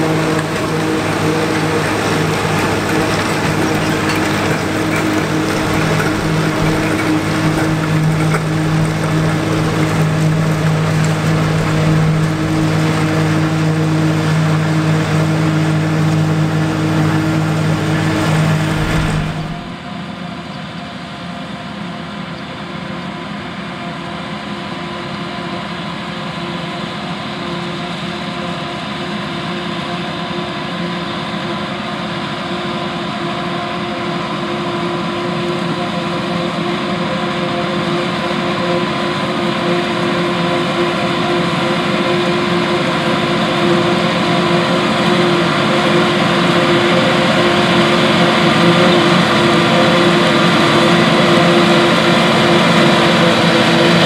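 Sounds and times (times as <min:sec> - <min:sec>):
dull machine hum: 0:00.0 - 0:19.8
tractor diesel drone: 0:00.0 - 0:54.0.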